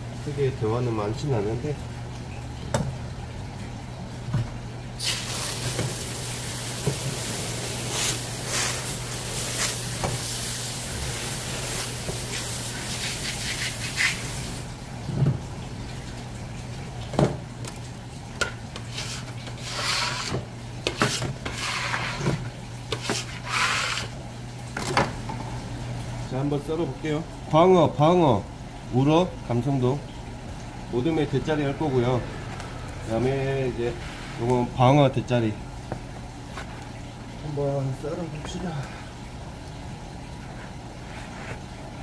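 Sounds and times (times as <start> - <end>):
water running from a tap: 5.0 - 24.8.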